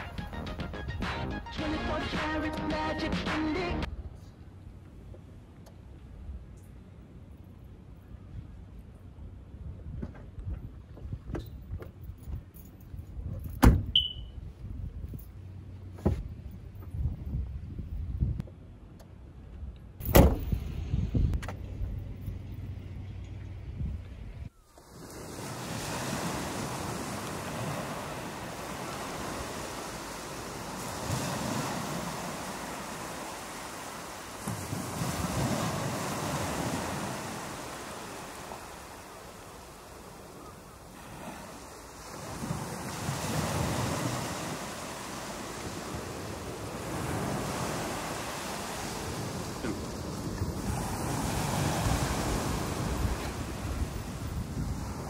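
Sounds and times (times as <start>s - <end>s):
wind buffeting microphone: 16.1s - 18.6s, 20.1s - 22.0s, 45.3s - 55.0s
ocean surf washing in: 24.8s - 55.0s.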